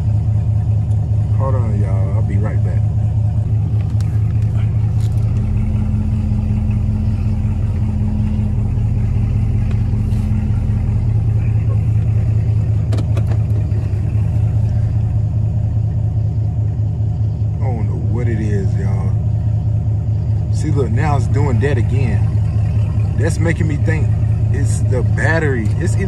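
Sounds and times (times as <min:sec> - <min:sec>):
car engine idling: 0:00.0 - 0:26.0.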